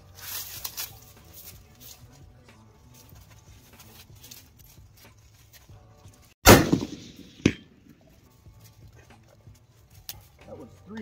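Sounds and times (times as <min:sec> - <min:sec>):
rifle shot: 0:06.4 - 0:08.0
bullet striking steel plate: 0:06.4 - 0:08.1.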